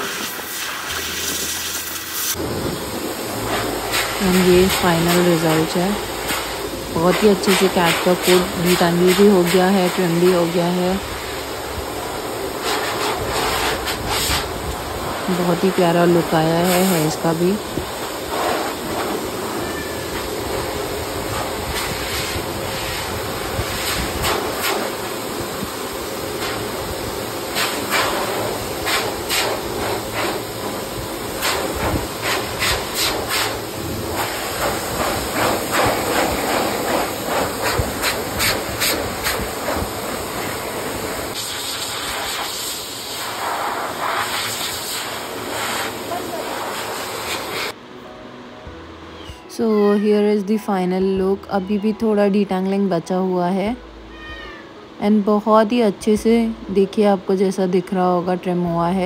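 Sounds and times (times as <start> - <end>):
brush strokes through fur: 0.0 - 2.4, 12.6 - 14.5, 21.3 - 25.1, 27.6 - 30.4, 31.4 - 40.6, 41.3 - 47.7
hair dryer blowing air: 0.0 - 47.8.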